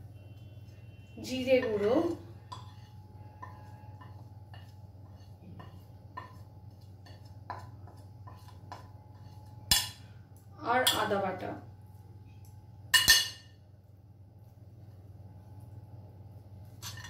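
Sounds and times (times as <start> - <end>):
steady low hum: 0.0 - 17.0
spoon clinking on plate: 13.0 - 13.6.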